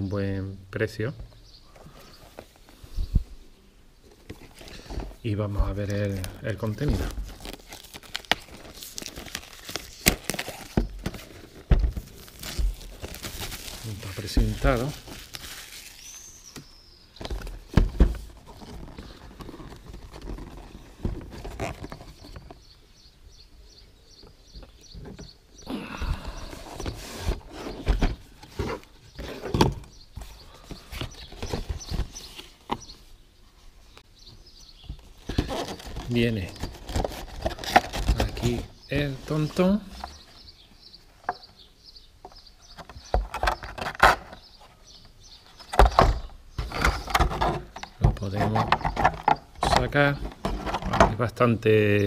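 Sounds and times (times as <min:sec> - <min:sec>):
papery rustling: 0:04.2 - 0:16.5, 0:17.2 - 0:22.6, 0:35.1 - 0:40.4
plastic wrapping crinkling: 0:05.8 - 0:16.6, 0:17.2 - 0:22.6.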